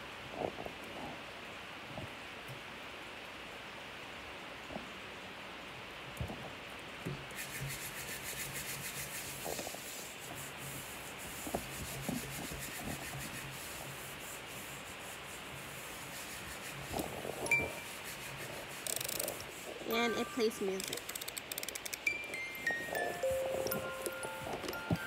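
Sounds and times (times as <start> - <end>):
hands rubbing on plastic: 7.3 - 25.0.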